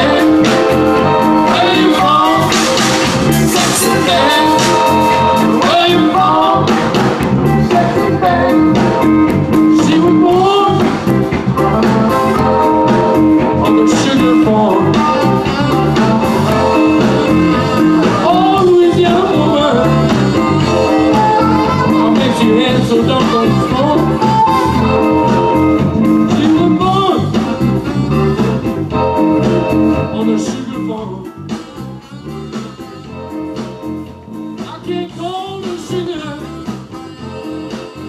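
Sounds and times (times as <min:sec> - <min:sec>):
accordion: 0:00.0 - 0:38.0
drum kit: 0:00.0 - 0:38.0
electric bass: 0:00.0 - 0:38.0
electric guitar: 0:00.0 - 0:38.0
saxophone: 0:00.0 - 0:38.0.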